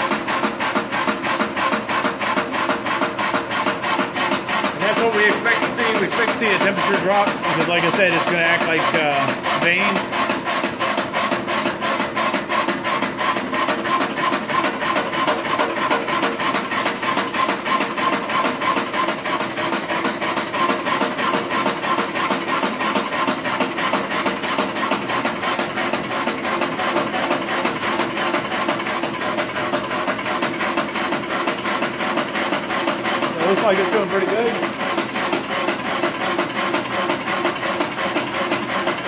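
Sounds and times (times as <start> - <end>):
roaster drum clattering: 0.0 - 39.0
electric motor hum: 2.0 - 19.4, 30.5 - 39.0.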